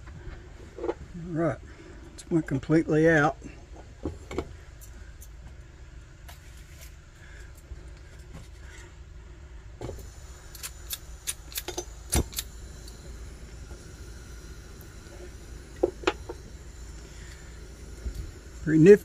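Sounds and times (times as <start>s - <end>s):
flint striker scraping clicks: 10.5s - 13.0s.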